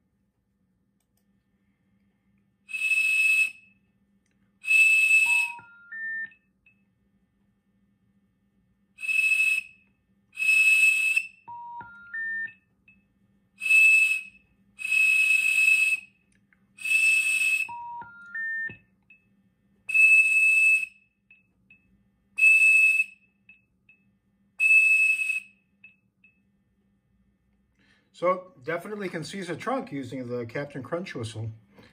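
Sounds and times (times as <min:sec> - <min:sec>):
whistle blasts into microphone: 0:02.7 - 0:03.8, 0:04.6 - 0:06.3, 0:09.0 - 0:12.5, 0:13.6 - 0:16.2, 0:16.8 - 0:18.8, 0:19.9 - 0:21.1, 0:22.4 - 0:23.4, 0:24.6 - 0:25.7
rising three-note phone tone: 0:05.3 - 0:06.3, 0:11.5 - 0:12.5, 0:17.7 - 0:18.8.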